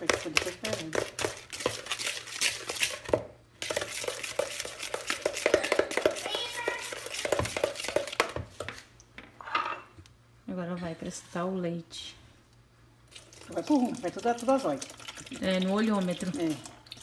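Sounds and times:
spoon beating eggs in plastic bowl: 0:00.0 - 0:08.8.

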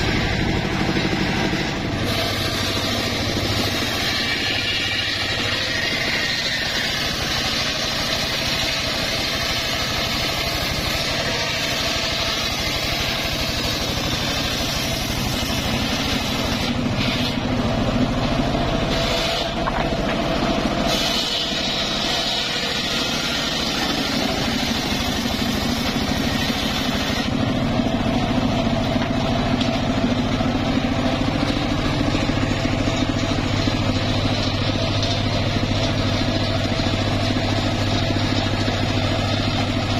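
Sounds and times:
engine drone: 0:00.0 - 0:39.9
saw blade hissing through wood: 0:00.2 - 0:17.6, 0:18.8 - 0:19.7, 0:20.7 - 0:27.4.

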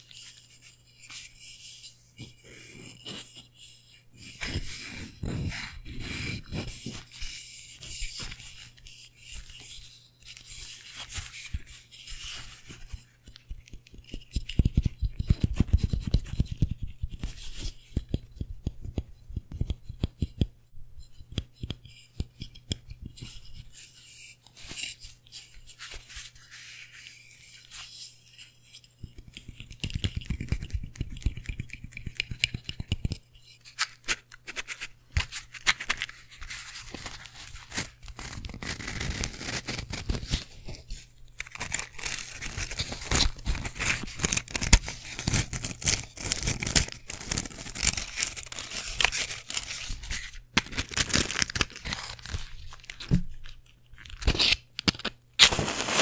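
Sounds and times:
rubbing on microphone: 0:00.0 - 0:20.0, 0:34.5 - 0:50.4
matchbox handling: 0:21.2 - 0:56.0.

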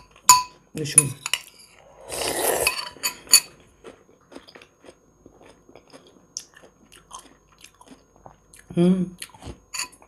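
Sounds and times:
spoon scraping ceramic bowl: 0:01.2 - 0:03.5
soft chewing: 0:03.1 - 0:10.0.

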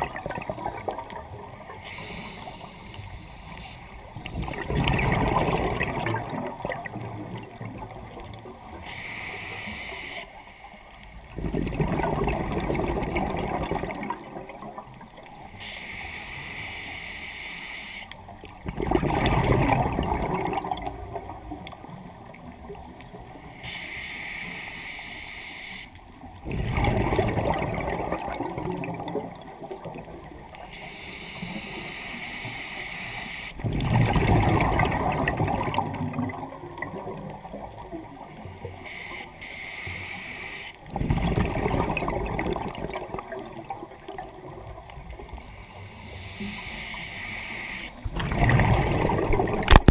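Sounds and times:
exhaled bubbles rushing: 0:00.0 - 0:01.8, 0:03.5 - 0:08.8, 0:11.2 - 0:15.3, 0:18.4 - 0:23.3, 0:26.2 - 0:30.6, 0:33.6 - 0:38.5, 0:40.8 - 0:45.4, 0:48.0 - 0:49.9
regulator inhale hiss: 0:01.6 - 0:04.2, 0:08.6 - 0:11.2, 0:15.3 - 0:18.3, 0:23.4 - 0:26.0, 0:30.6 - 0:33.6, 0:38.4 - 0:40.8, 0:45.3 - 0:48.0.

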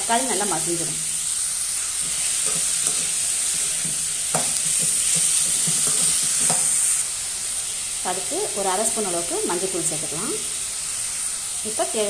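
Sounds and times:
vegetables sizzling in oil: 0:00.0 - 0:12.0
spatula scraping a pan: 0:01.2 - 0:07.1.

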